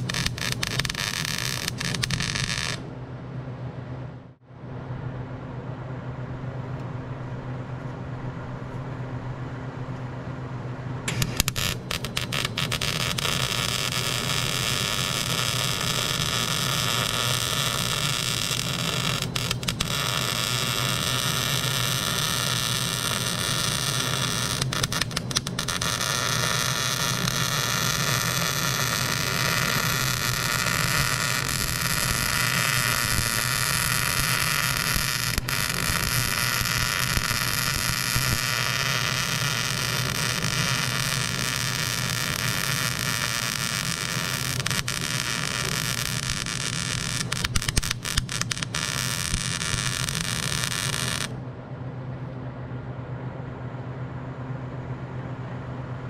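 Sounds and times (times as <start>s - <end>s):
arc welding hiss: 0.0s - 2.8s, 11.1s - 51.3s.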